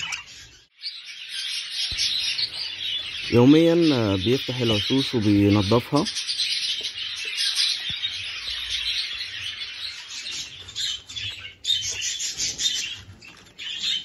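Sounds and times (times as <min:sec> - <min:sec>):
budgerigars chattering: 0:00.0 - 0:14.0.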